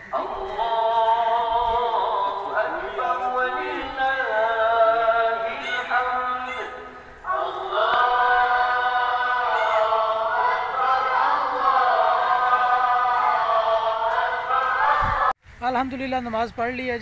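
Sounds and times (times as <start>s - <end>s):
group of voices chanting: 0.1s - 15.4s.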